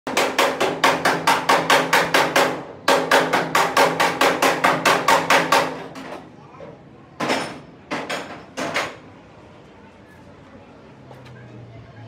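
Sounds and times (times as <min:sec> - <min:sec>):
rapid hammering on metal: 0:00.1 - 0:06.2, 0:07.2 - 0:09.0.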